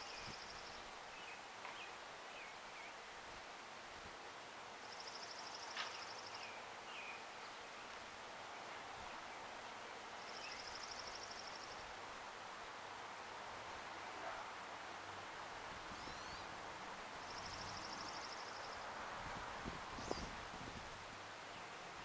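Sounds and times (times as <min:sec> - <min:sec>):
steady background hiss: 0:00.0 - 0:22.0
faint bird chirps: 0:10.2 - 0:11.8, 0:15.9 - 0:16.5, 0:17.2 - 0:18.9.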